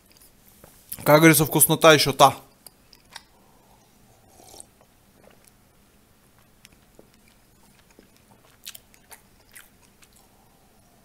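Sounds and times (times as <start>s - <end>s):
person sipping and swallowing: 3.0s - 5.6s.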